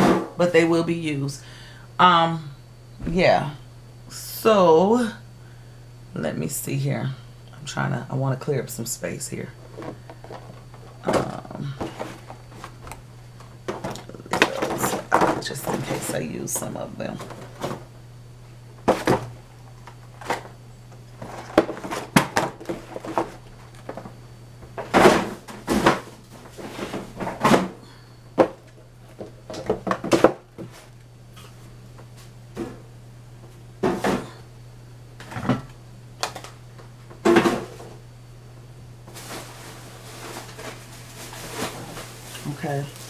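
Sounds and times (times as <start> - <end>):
low hum: 0.0 - 21.9.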